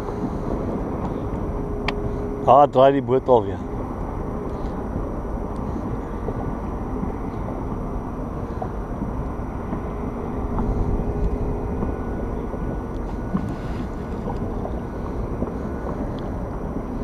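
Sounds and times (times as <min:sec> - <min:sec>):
faint steady hum: 0:00.0 - 0:17.0
low rumble: 0:00.0 - 0:17.0.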